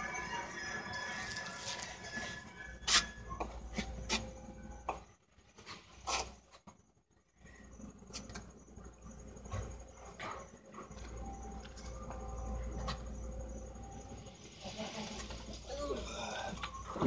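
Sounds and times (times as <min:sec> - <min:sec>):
faint low rumble: 0:06.8 - 0:17.0.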